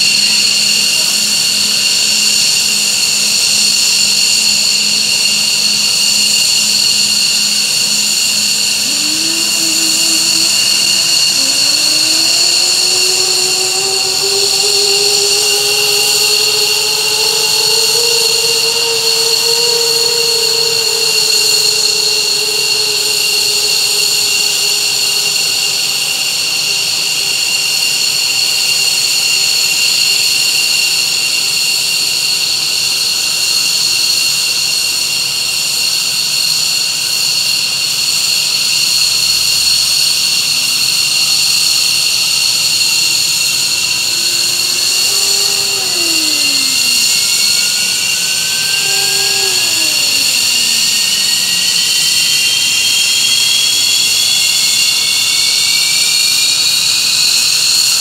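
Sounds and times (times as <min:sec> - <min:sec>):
jet engine whine: 0:00.0 - 0:38.2, 0:39.0 - 0:58.0
engine whine rising in pitch: 0:00.2 - 0:27.8, 0:42.0 - 0:58.0.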